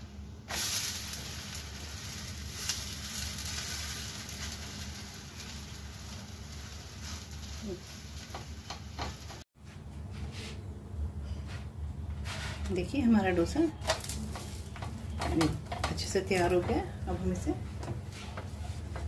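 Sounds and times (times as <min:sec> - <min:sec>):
food sizzling on a hot griddle: 0:00.4 - 0:09.4.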